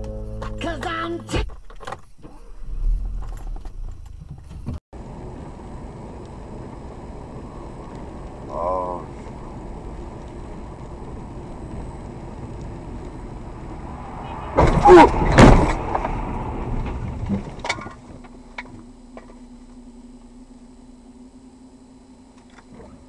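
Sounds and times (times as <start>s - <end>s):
low hum: 0.0s - 1.3s, 2.2s - 23.0s
road noise: 0.0s - 23.0s
car crash impacts: 13.9s - 19.4s.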